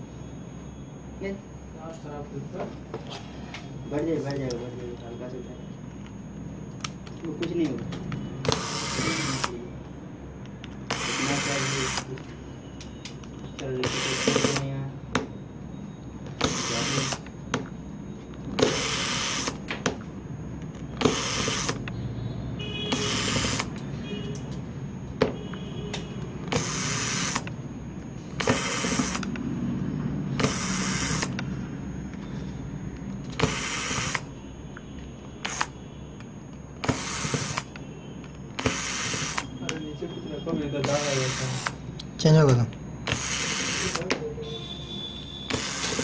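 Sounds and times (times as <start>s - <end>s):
electric screwdriver spinning: 8.5s - 9.6s, 10.9s - 12.1s, 16.4s - 17.3s, 18.6s - 19.6s, 21.0s - 21.9s, 22.9s - 23.8s, 26.4s - 27.5s, 28.4s - 29.4s, 30.4s - 31.4s, 33.3s - 34.3s, 36.8s - 37.7s, 38.6s - 39.5s, 40.8s - 41.8s, 43.1s - 44.1s, 45.5s - 46.0s.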